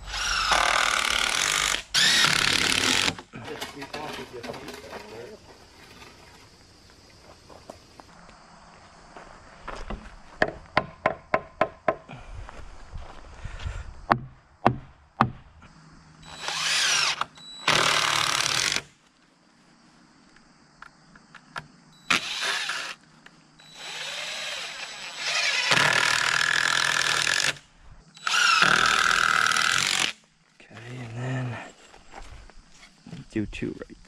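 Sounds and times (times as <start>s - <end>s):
drill driving screws into wood: 0.0s - 3.2s, 16.3s - 18.9s, 22.1s - 23.0s, 23.7s - 27.6s, 28.2s - 30.2s.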